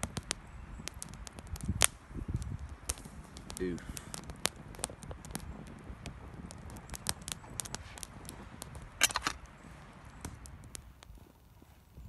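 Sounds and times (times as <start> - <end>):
sharp pops and snaps: 0.0 - 11.3
campfire crackling: 0.0 - 12.0.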